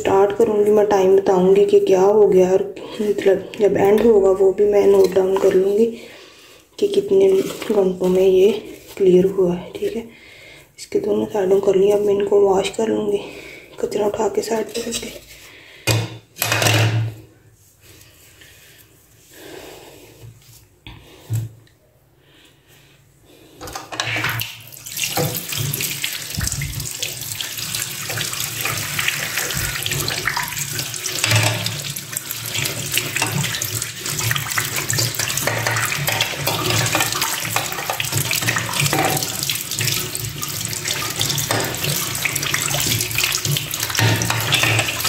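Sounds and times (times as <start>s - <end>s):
water splashing over plastic filters: 3.0s - 6.1s, 6.8s - 10.0s, 23.9s - 45.0s
tap water running into sink: 23.9s - 45.0s.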